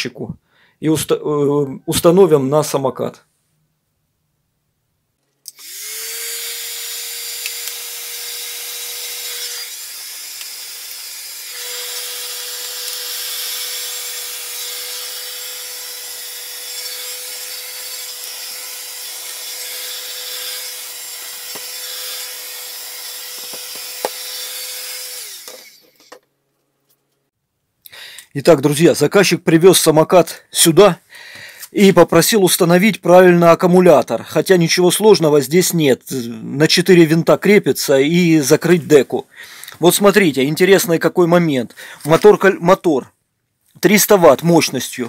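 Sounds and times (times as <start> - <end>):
heat gun fan whine: 5.4 - 16.9.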